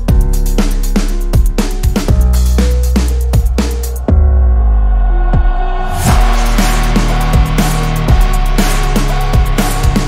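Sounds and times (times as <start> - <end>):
bass-heavy music with drum beat: 0.0 - 10.0.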